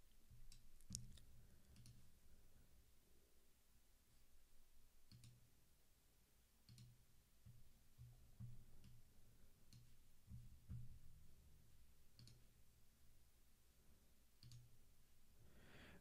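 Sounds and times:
faint clicks: 0.5s - 2.0s, 12.2s - 12.5s, 14.4s - 14.7s.

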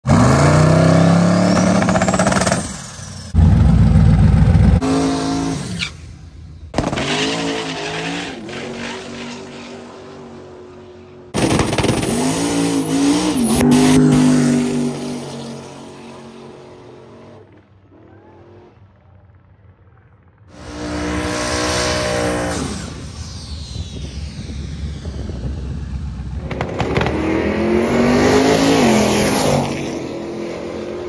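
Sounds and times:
car engine revving and idling: 20.5s - 31.0s.

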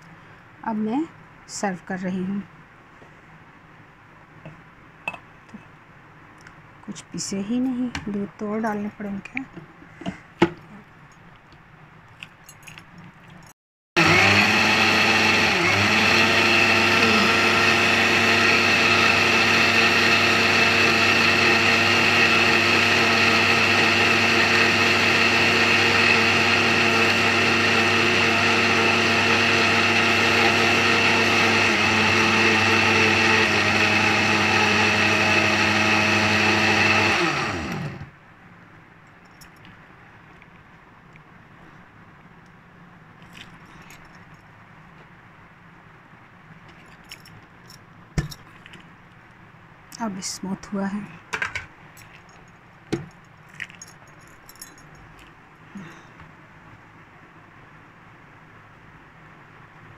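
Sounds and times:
blender motor whine: 14.0s - 38.1s.

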